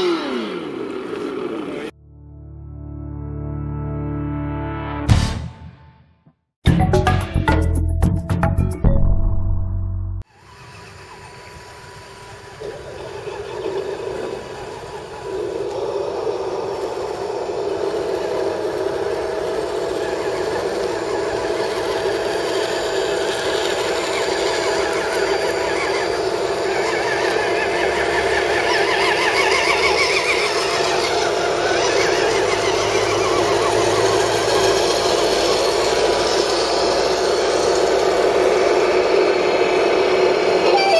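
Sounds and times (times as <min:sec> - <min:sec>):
toy trucks electric motors whining: 0:00.0 - 0:01.9, 0:10.3 - 0:40.9.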